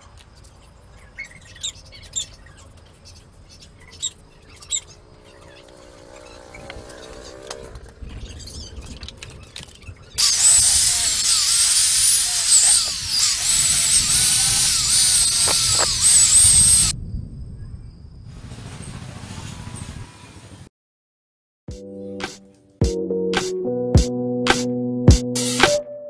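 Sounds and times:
grinder motor whine: 10.2 - 17.0.

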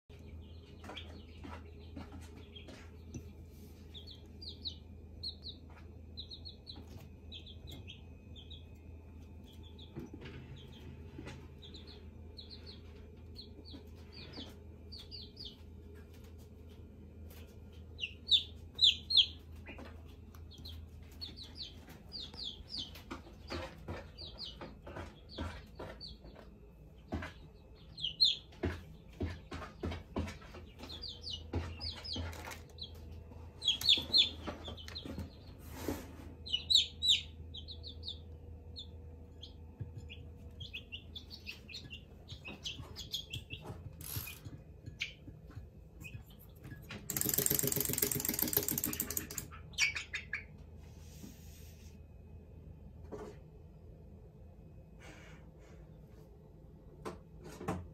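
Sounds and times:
chicks peeping: 0.1 - 51.4
steady low hum: 0.1 - 57.4
beaks tapping on ceramic plates: 18.3 - 33.0, 39.4 - 50.4.

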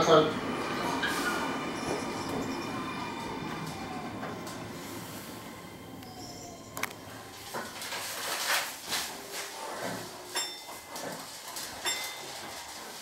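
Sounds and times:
train clicks and knocks: 0.8 - 4.6, 9.8 - 13.0.

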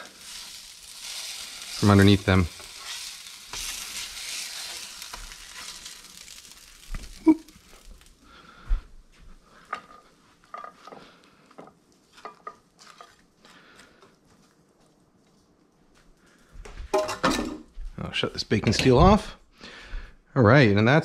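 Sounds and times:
metal spatula scraping: 0.0 - 7.2
tacos sizzling on a griddle: 0.0 - 8.8.

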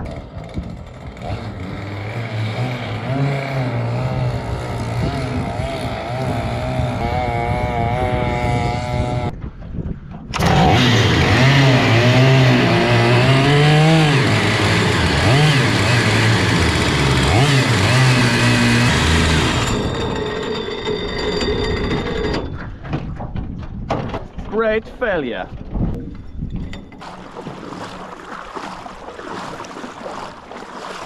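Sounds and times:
chainsaw engine revving unevenly: 0.0 - 9.3, 10.4 - 20.0.

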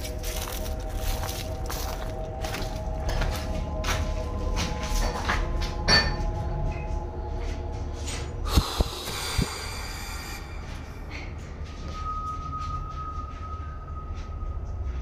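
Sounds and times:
footsteps on debris-covered concrete: 0.0 - 5.8.

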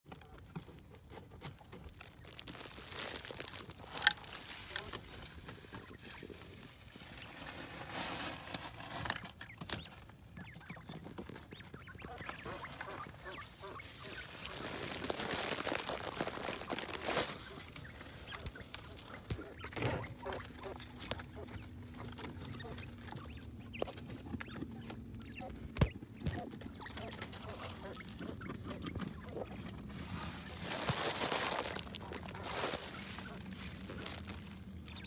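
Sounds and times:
scratching in dry leaves: 1.9 - 10.1, 11.3 - 24.1, 26.2 - 35.0
quail calling softly: 9.5 - 35.0.

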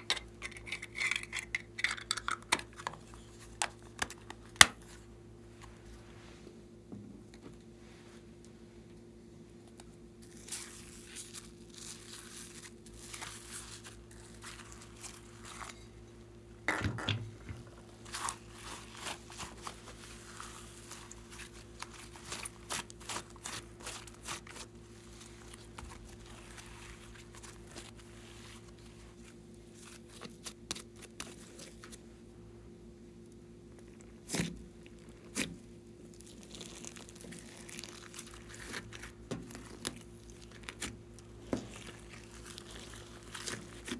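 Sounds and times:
slime crackling and popping: 17.6 - 28.0, 33.8 - 43.9.

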